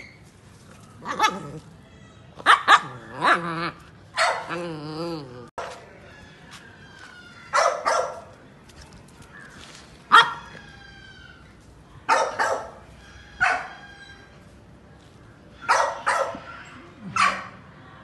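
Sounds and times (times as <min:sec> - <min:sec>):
puppy barking and yipping: 0:02.4 - 0:03.5, 0:04.1 - 0:04.6, 0:07.5 - 0:08.2, 0:10.1 - 0:10.7, 0:13.4 - 0:14.0.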